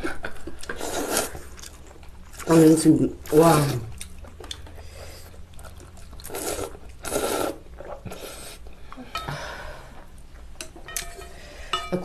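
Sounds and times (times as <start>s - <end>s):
noodles being slurped and chewed: 3.5s - 8.7s.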